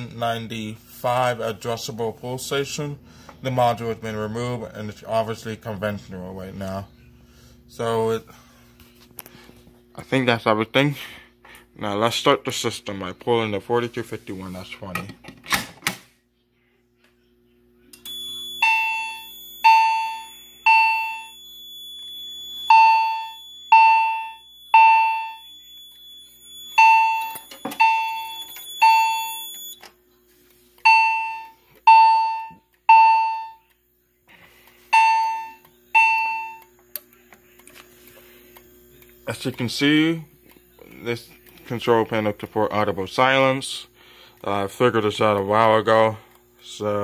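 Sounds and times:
fire alarm chime dings: 18.0s - 29.9s, 30.8s - 33.7s, 34.9s - 36.7s.

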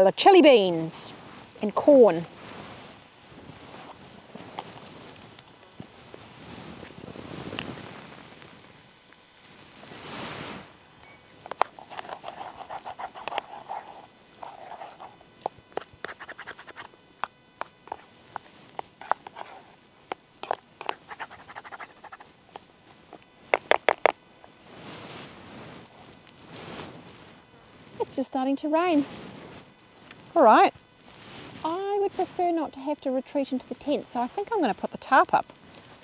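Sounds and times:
cooking gear clicks and scrapes: 11.4s - 24.1s.

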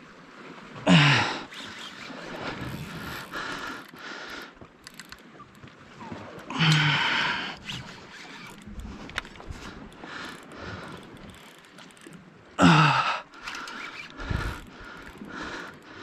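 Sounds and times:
fishing reel working under load: 1.5s - 4.0s, 7.6s - 12.2s, 13.3s - 15.8s.

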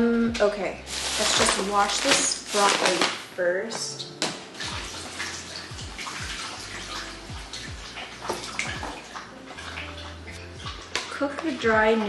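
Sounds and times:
tap water splashing into sink: 2.6s - 12.0s.

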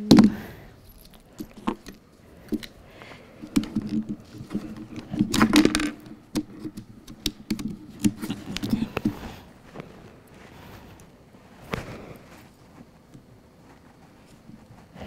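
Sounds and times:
laptop keys and trackpad clicking: 3.4s - 9.2s.

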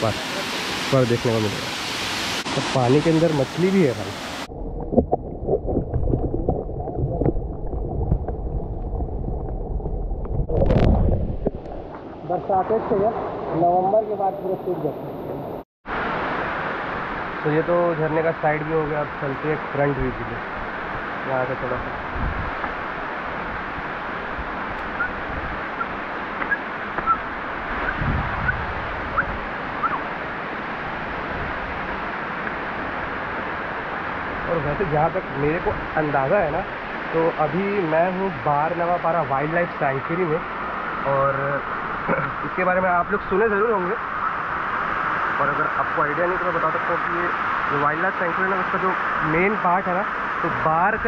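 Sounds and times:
waterfall rushing: 0.0s - 4.5s
wind buffeting microphone: 22.1s - 22.6s, 27.7s - 30.0s.

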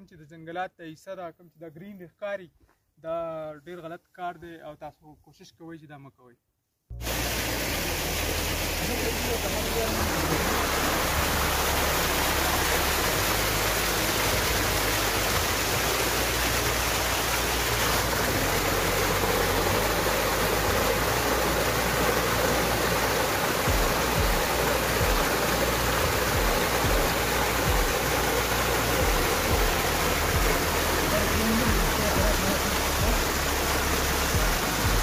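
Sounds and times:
stream rushing over rocks: 7.0s - 35.0s
low thumps: 23.7s - 25.4s, 26.0s - 28.1s, 29.0s - 30.8s, 34.3s - 35.0s.

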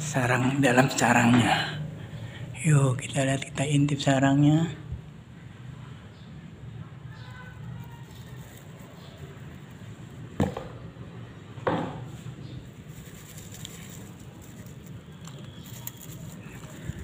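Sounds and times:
low background noise: 0.0s - 17.0s
handling in dry grass: 7.4s - 10.3s, 12.2s - 17.0s.

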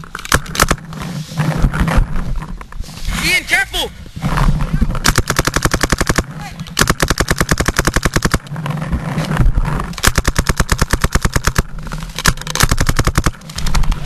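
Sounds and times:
paintball marker rapid fire: 0.2s - 0.9s, 4.9s - 8.5s, 9.8s - 14.0s.

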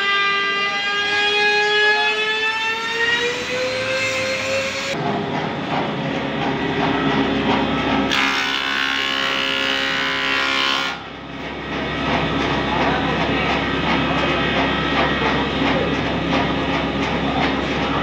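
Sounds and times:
machine whine rising in pitch: 0.9s - 5.0s.

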